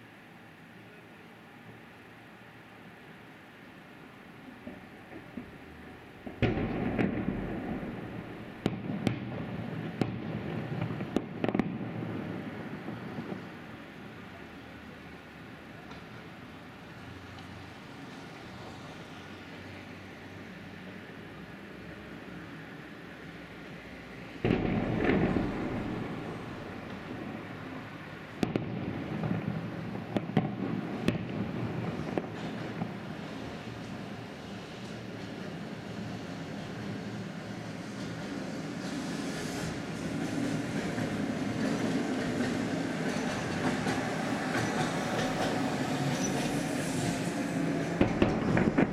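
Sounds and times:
fireworks sharp bangs: 0:06.2 - 0:13.5, 0:24.4 - 0:33.7, 0:47.8 - 0:48.9
fireworks popping: 0:06.2 - 0:13.6, 0:24.4 - 0:27.5, 0:28.3 - 0:33.9, 0:47.9 - 0:48.9
fireworks boom: 0:06.3 - 0:11.9, 0:24.4 - 0:27.4.

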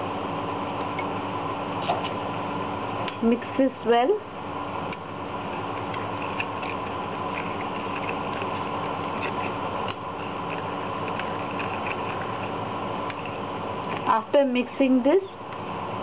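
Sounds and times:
steady mechanical hum: 0:00.0 - 0:16.0
metal spoon stirring in bowl: 0:05.4 - 0:14.1.

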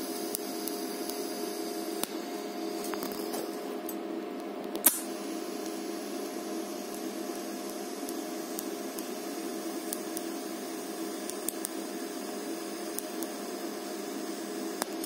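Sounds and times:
welding arc hissing: 0:00.0 - 0:03.9, 0:04.8 - 0:15.0.

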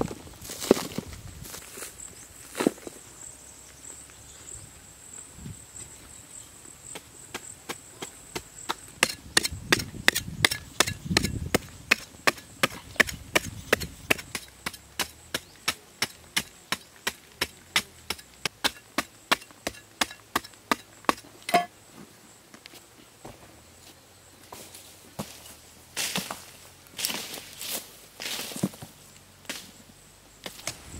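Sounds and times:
digging tool chopping stony soil: 0:06.9 - 0:21.7.

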